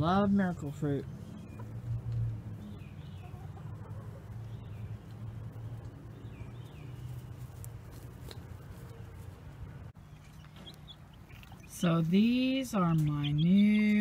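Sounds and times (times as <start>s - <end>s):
bird chirps: 4.3s - 7.3s, 10.0s - 14.0s.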